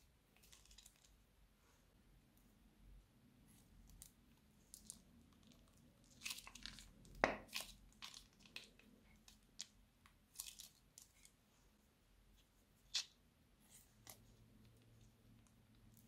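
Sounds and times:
slime crackling and popping: 4.7 - 11.3.

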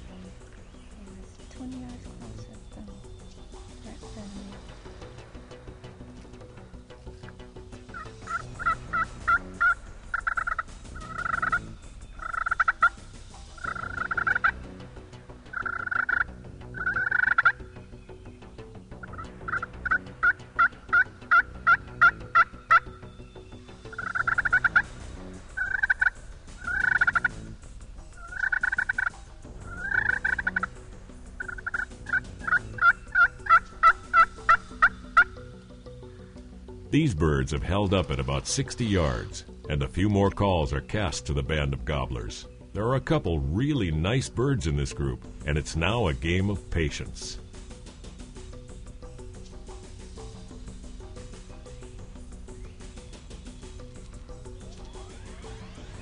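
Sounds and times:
turkey yelping notes: 7.8 - 14.7, 15.5 - 17.7, 19.0 - 23.2, 23.8 - 24.9, 25.5 - 36.5
turkeys gobbling: 7.8 - 14.7, 15.4 - 17.8, 19.0 - 23.2, 23.8 - 41.2.

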